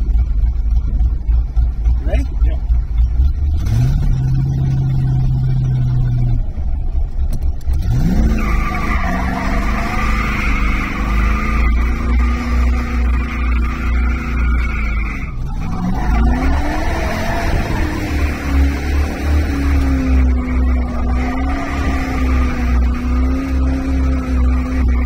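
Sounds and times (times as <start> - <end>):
car engine revving: 0.0 - 25.0
tires squealing: 7.7 - 25.0.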